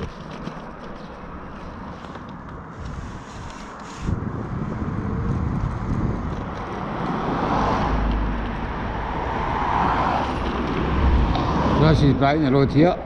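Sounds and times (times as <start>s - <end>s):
wind rushing over microphone: 1.8s - 13.0s.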